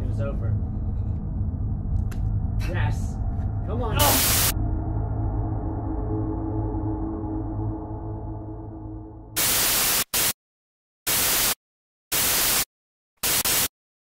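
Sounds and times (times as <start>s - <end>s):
low droning musical tone: 0.0s - 9.4s
static hiss bursts: 4.2s - 4.5s, 9.4s - 10.4s, 11.1s - 13.7s.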